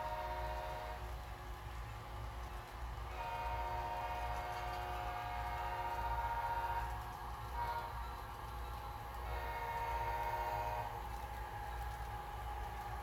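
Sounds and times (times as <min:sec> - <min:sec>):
diesel air horn through small speaker: 0:03.2 - 0:06.8, 0:09.3 - 0:10.9.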